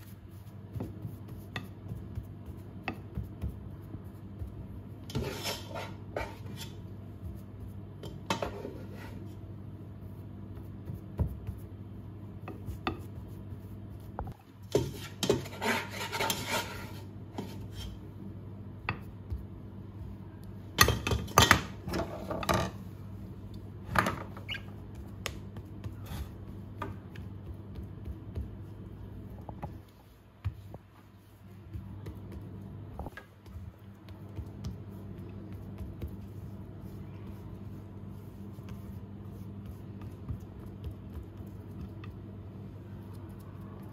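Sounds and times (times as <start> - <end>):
steady low hum: 0.0 - 43.9
spatula scraping glass dish: 5.1 - 6.8, 14.7 - 18.0.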